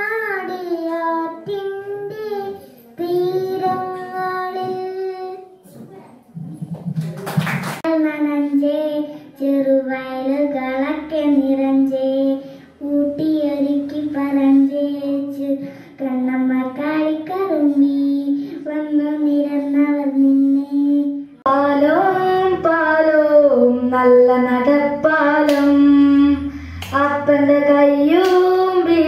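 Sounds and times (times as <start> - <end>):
girl singing into microphone: 0.0 - 6.0, 7.8 - 29.0.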